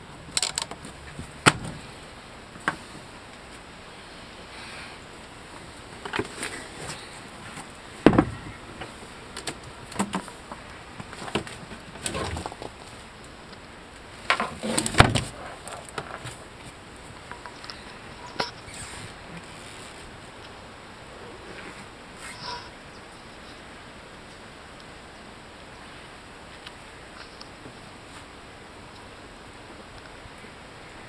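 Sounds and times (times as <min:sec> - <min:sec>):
low steady hiss: 0:00.0 - 0:31.0.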